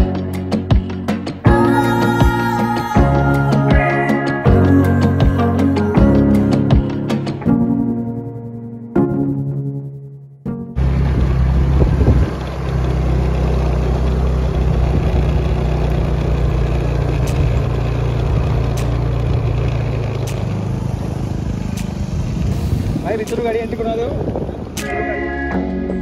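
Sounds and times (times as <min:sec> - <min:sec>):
motor scooter engine running: 0:00.0 - 0:07.4, 0:10.8 - 0:26.0
wind and road noise: 0:10.8 - 0:26.0.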